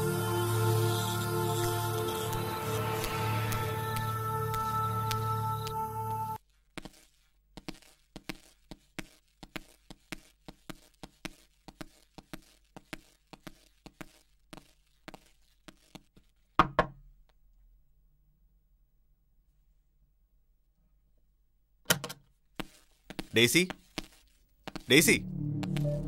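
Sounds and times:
footsteps on tiled floor: 0:06.4 - 0:16.4, 0:22.6 - 0:26.0.

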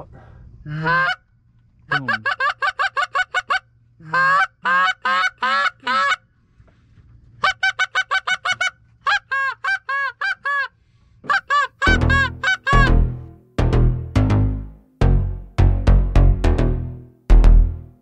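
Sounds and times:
goose honking and clucking: 0:00.7 - 0:01.2, 0:01.9 - 0:06.2, 0:07.4 - 0:13.2.

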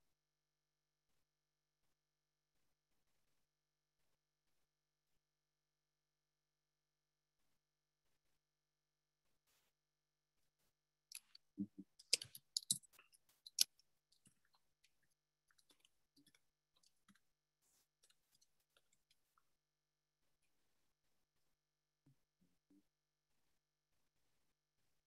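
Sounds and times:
keyboard and mouse clicking: 0:11.1 - 0:13.7.

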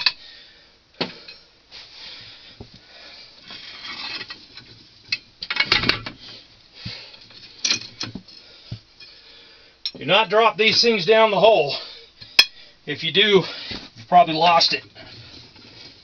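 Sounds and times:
soft scraping: 0:01.7 - 0:05.2, 0:13.5 - 0:16.0
metal clanks: 0:03.9 - 0:06.2
metal rods clinking: 0:07.5 - 0:08.1.

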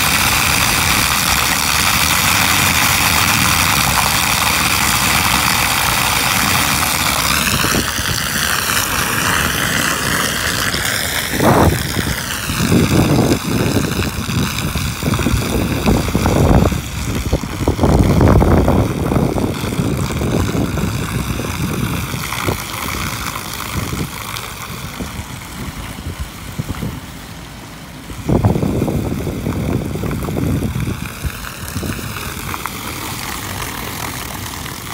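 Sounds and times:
low rumbles: 0:00.0 - 0:34.9
water rushing down roof drain: 0:00.0 - 0:34.9.

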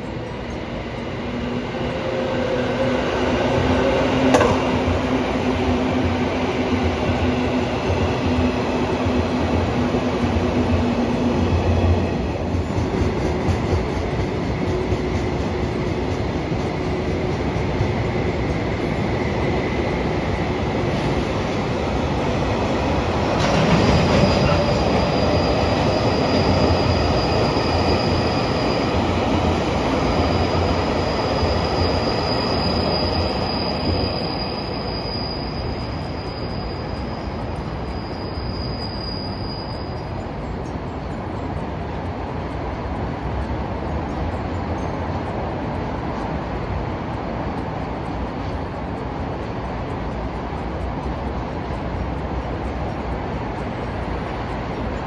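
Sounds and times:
train running on rails: 0:00.0 - 0:55.0
high wheel squeal: 0:22.7 - 0:40.8.

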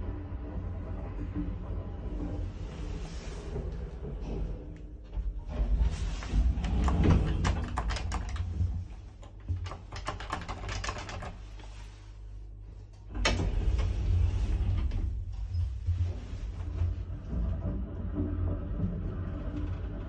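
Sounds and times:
elevator low rumble: 0:00.0 - 0:20.0
elevator button clicks and rattles: 0:06.6 - 0:11.3.

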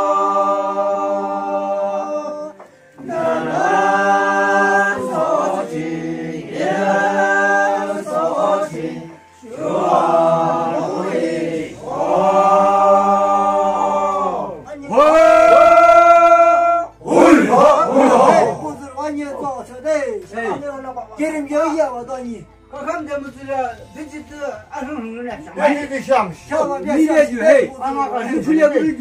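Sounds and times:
voices singing unaccompanied chant: 0:00.0 - 0:18.8.

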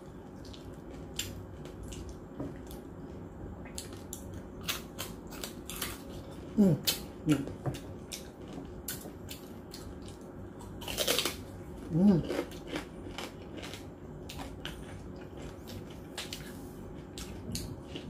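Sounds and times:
crunching and chewing food: 0:00.0 - 0:18.0.

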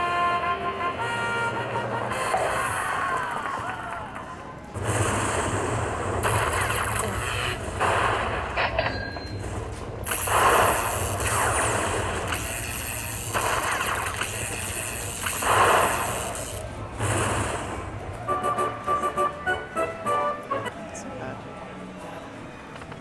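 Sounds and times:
crackling bursts: 0:01.0 - 0:19.3.

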